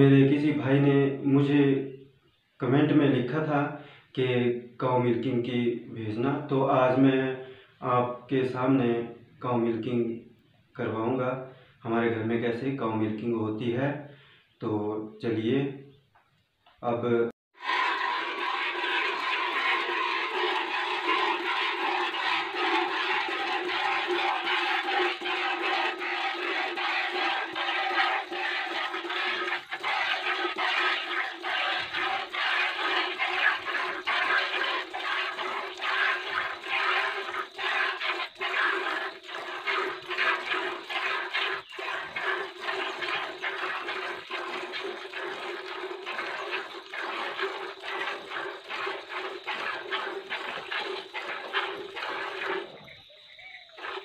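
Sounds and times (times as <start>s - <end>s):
milk squirting into plastic bucket: 17.6s - 53.0s, 53.7s - 54.0s.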